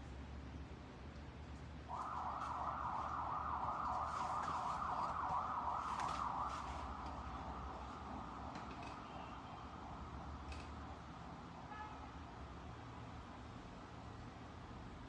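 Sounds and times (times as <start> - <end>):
emergency vehicle siren wailing: 1.8 - 11.5.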